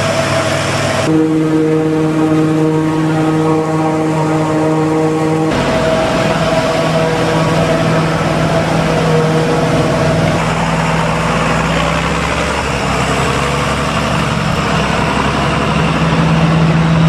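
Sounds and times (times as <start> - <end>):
heavy diesel machinery hum: 0.0 - 17.0.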